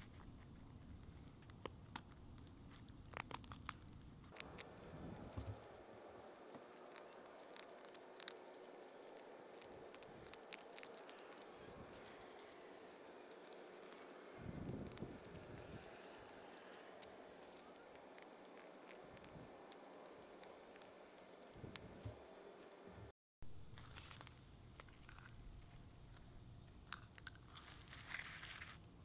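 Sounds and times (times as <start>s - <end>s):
knife shaving wood: 0.0s - 23.0s
wood slivers cracking: 2.7s - 22.8s.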